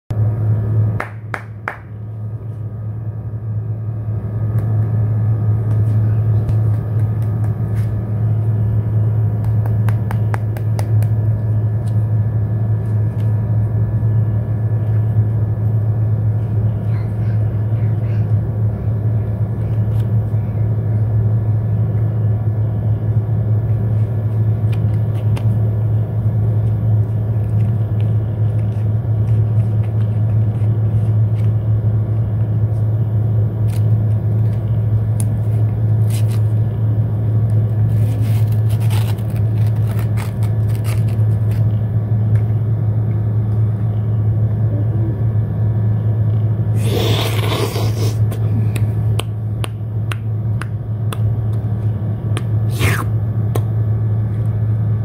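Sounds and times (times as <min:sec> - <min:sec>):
low mechanical hum: 0:00.1 - 0:55.0
wrapper crinkling: 0:37.9 - 0:41.7.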